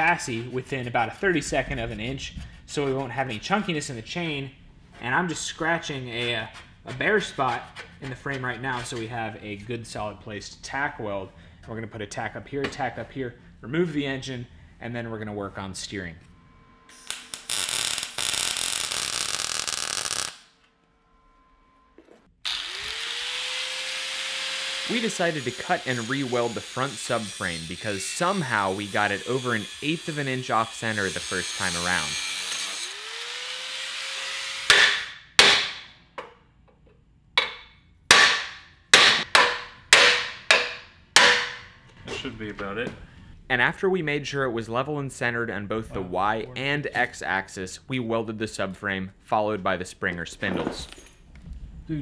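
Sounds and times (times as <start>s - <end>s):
arc welder crackling hiss: 16.9s - 20.5s
angle grinder whine: 21.0s - 27.3s, 27.9s - 35.1s
hammer striking steel frame: 34.7s - 36.0s, 37.4s - 41.8s.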